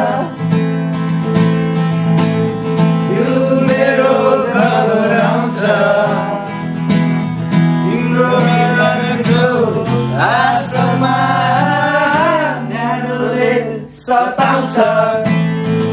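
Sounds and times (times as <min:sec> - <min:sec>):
man singing: 0:00.0 - 0:00.6, 0:03.0 - 0:06.7, 0:07.8 - 0:15.9
acoustic guitar strumming: 0:00.0 - 0:15.9.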